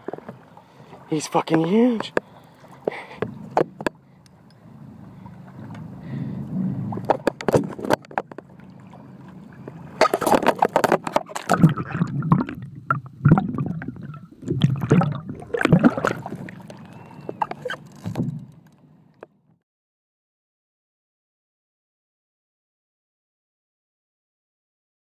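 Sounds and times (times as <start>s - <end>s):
water sloshing and gurgling: 0.0s - 19.3s
handling knocks and clicks: 17.4s - 18.8s.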